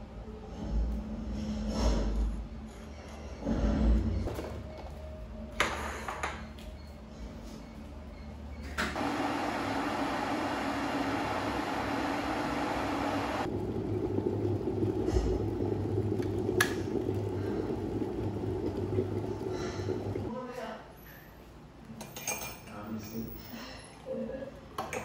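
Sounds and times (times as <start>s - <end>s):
electric kettle boiling water: 8.8s - 20.4s.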